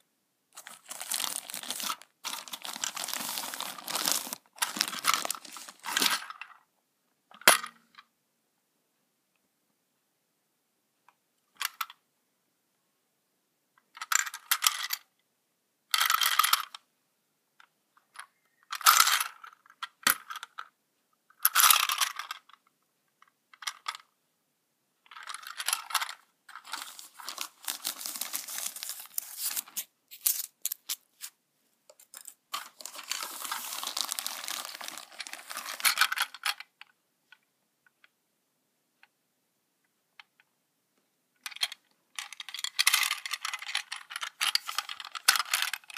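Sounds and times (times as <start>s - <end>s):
plastic toy train clattering: 41.4s - 45.9s.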